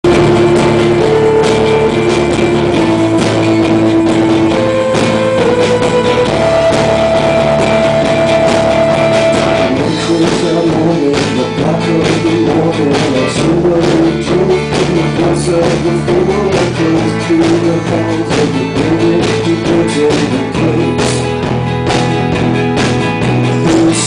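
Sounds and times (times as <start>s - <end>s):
melody of long held notes: 0.0s - 9.9s
acoustic guitar strumming: 0.0s - 24.0s.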